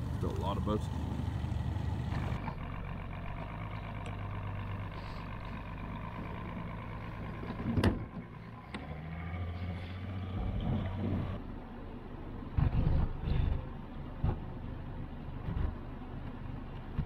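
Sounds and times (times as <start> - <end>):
outboard motor idling: 0.0 - 11.8.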